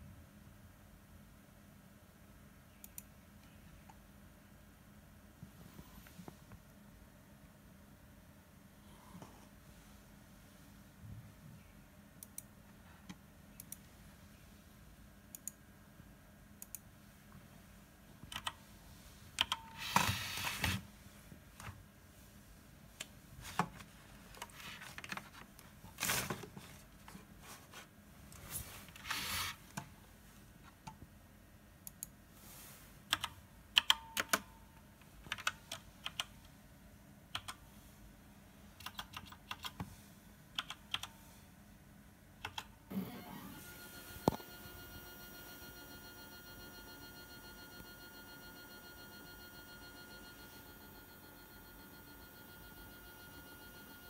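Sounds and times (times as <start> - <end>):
mouse clicks: 2.8 - 4.0
computer keyboard typing: 18.3 - 18.6, 19.4 - 20.1, 33.1 - 34.4, 35.3 - 36.3, 37.4 - 37.6, 38.8 - 39.8, 40.6 - 41.1, 42.4 - 42.7.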